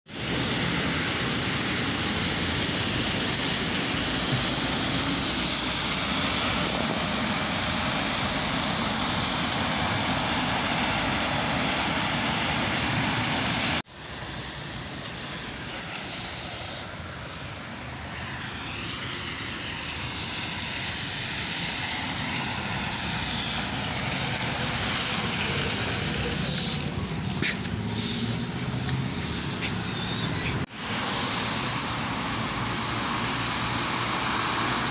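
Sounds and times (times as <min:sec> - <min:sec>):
tyres hissing on wet asphalt: 0:00.1 - 0:34.9
vehicles passing on wet road: 0:00.1 - 0:34.9.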